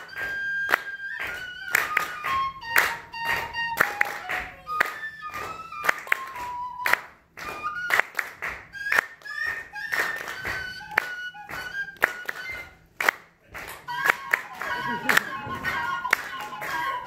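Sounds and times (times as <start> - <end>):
flute playing a tune: 0.0 - 13.0, 13.8 - 17.0
audience clapping on the beat: 0.0 - 17.0.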